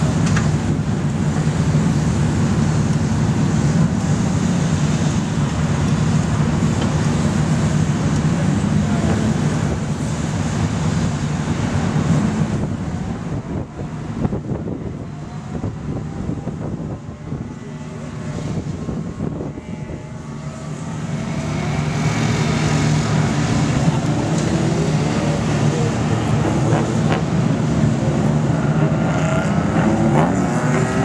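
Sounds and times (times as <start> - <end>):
race car engines droning: 0.0 - 31.0
wind buffeting microphone: 9.1 - 28.3.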